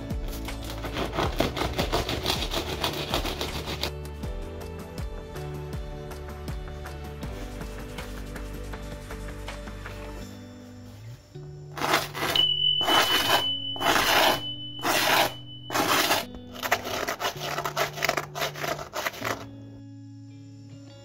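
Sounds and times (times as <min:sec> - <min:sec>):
soft background music: 0:00.0 - 0:21.0
knife scraping crisp crust: 0:00.3 - 0:03.9, 0:11.8 - 0:19.5.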